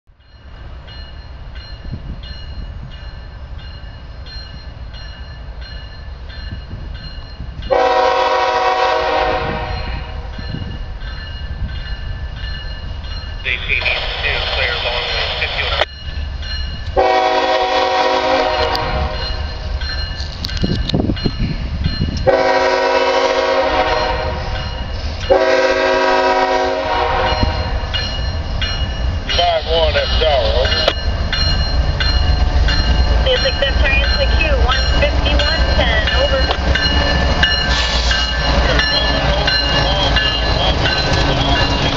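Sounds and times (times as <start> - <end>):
crossing warning bell ringing: 0.1 - 41.9
train rumble: 0.1 - 41.9
locomotive air horn: 7.7 - 10.2, 17.0 - 19.3, 22.2 - 24.6, 25.3 - 27.6.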